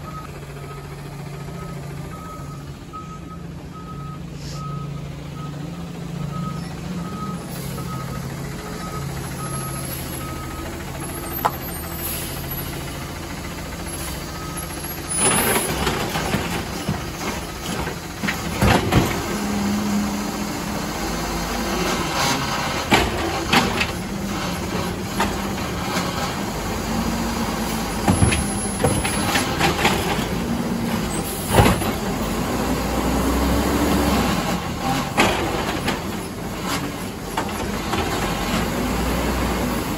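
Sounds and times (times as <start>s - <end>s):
reversing alarm beeping: 0.0s - 12.0s
diesel engine idling and revving: 0.0s - 39.9s.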